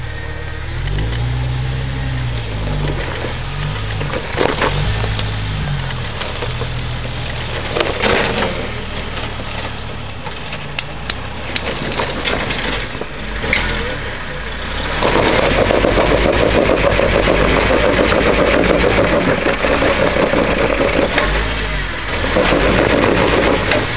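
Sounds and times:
car engine revving in low gear: 0.0s - 9.2s, 13.2s - 23.9s
branches crackling and snapping: 0.8s - 13.8s.

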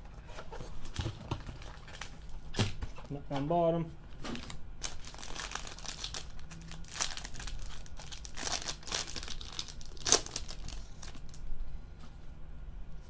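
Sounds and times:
plastic wrapping crinkling and tearing: 1.4s - 2.3s, 4.4s - 11.5s.

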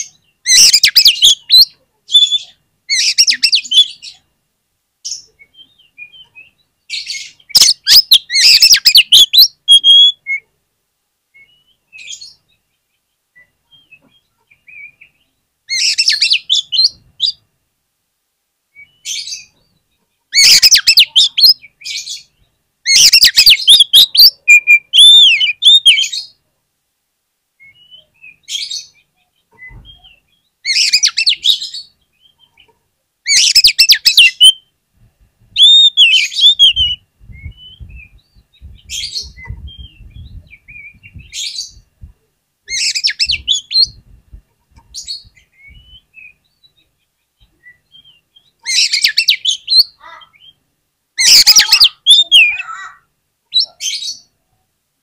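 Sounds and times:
bird singing whistled phrases: 0.5s - 4.0s, 5.4s - 10.5s, 13.4s - 17.4s, 18.7s - 19.5s, 20.4s - 22.2s, 22.9s - 26.4s, 27.6s - 29.0s, 29.6s - 32.5s, 33.3s - 34.7s, 35.6s - 41.8s, 42.7s - 44.0s, 45.1s - 46.6s, 47.6s - 50.6s, 51.2s - 54.3s.

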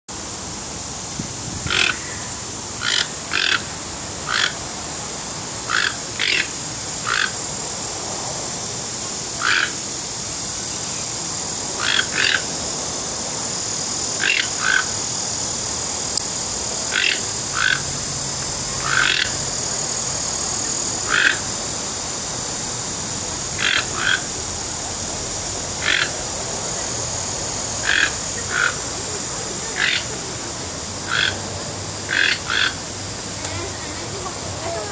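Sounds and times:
steady high hiss: 0.1s - 34.9s
toucan croaking: 1.6s - 4.7s, 5.6s - 7.5s, 9.4s - 9.9s, 11.4s - 12.7s, 13.5s - 21.6s, 23.4s - 32.9s.

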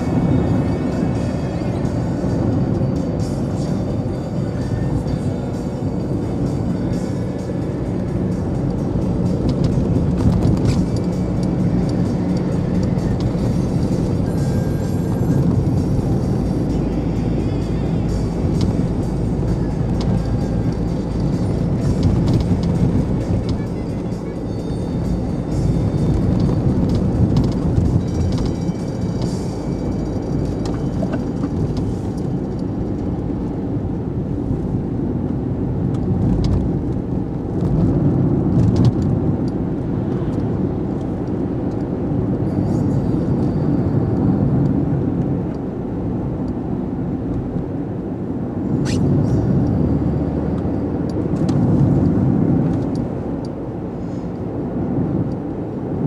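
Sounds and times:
car road and engine rumble: 0.0s - 56.0s.

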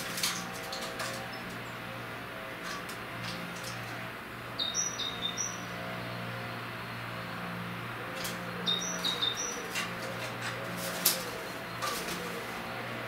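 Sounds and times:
songbird chirps: 4.6s - 13.0s.

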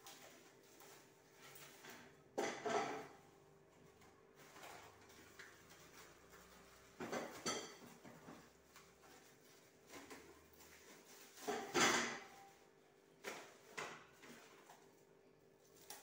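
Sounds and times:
metal pot and utensils clattering: 1.3s - 3.3s, 4.4s - 8.8s, 9.9s - 14.7s.

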